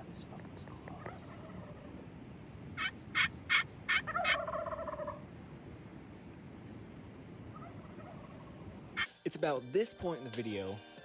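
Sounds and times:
wild turkey calling: 1.0s - 2.0s, 2.8s - 5.3s, 7.5s - 9.2s.

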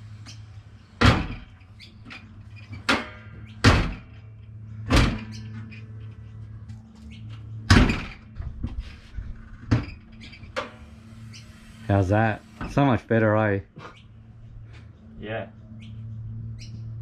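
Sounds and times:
steady low hum: 0.0s - 17.0s
sharp metal thunks: 2.8s - 4.2s, 4.8s - 5.4s, 7.7s - 8.4s.

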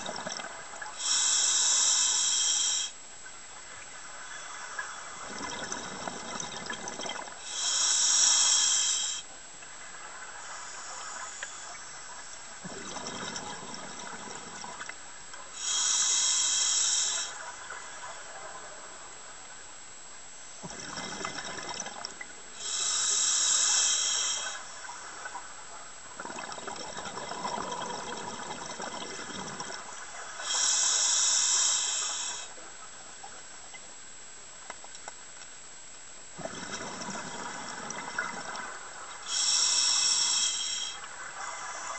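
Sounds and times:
regulator hissing inhalations: 0.9s - 3.0s, 7.4s - 9.3s, 15.5s - 17.4s, 22.6s - 24.7s, 30.4s - 32.6s, 39.2s - 41.9s
gurgling exhaled bubbles: 5.2s - 7.3s, 12.6s - 14.8s, 20.6s - 22.2s, 26.2s - 29.9s, 36.4s - 38.7s.

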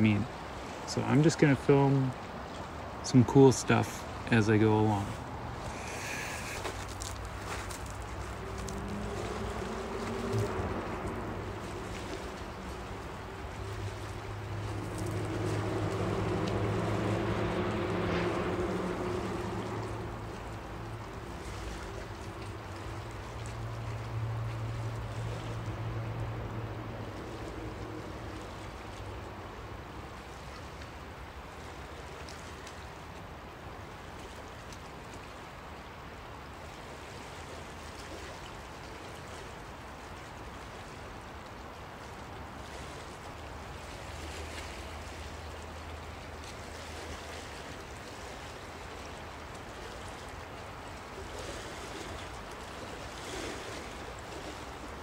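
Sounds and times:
small waves on pebble beach: 0.0s - 55.0s
low steady hum: 2.1s - 32.1s.

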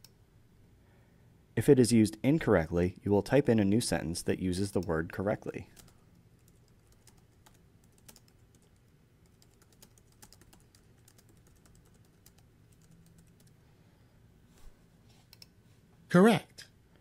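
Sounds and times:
keyboard typing: 5.7s - 13.6s.

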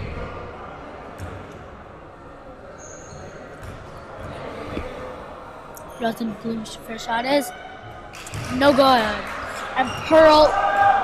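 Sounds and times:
voices in a gym: 0.0s - 11.0s.

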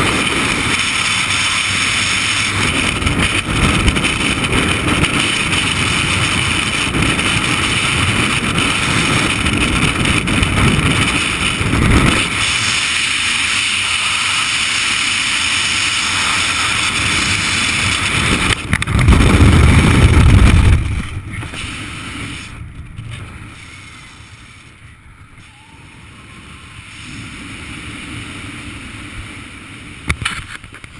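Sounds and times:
wind buffeting burst: 0.0s - 30.9s
wind rushing over helmet: 0.0s - 30.9s.

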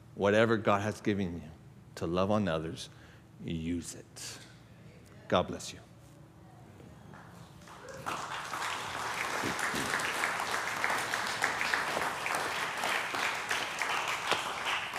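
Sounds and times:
congregation applauding: 7.6s - 14.9s.

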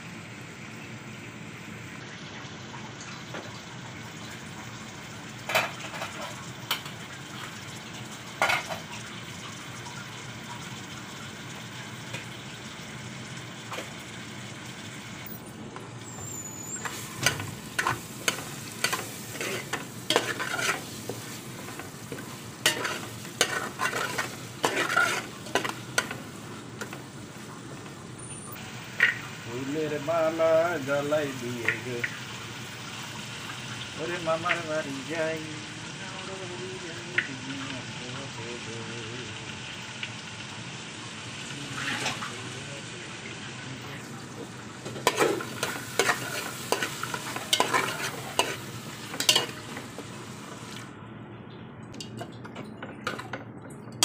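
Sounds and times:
onions sizzling in oil: 0.0s - 51.0s
steel spoon scraping and clinking pot: 16.8s - 20.8s, 22.6s - 26.2s, 45.1s - 48.6s, 49.2s - 49.6s.

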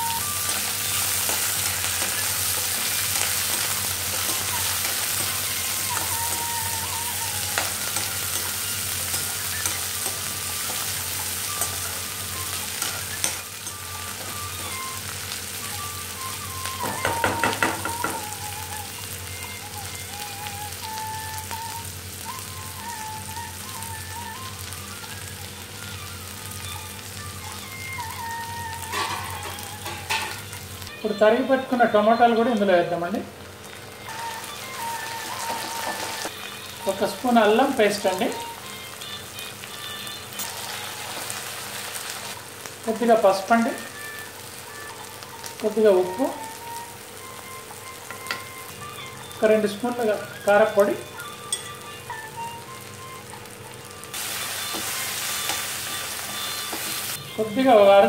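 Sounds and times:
onions sizzling in hot oil: 0.0s - 58.0s.

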